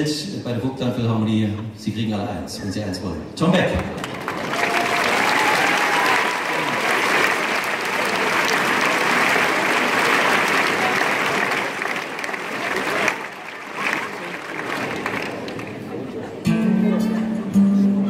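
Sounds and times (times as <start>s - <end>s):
audience applauding: 3.8s - 16.3s.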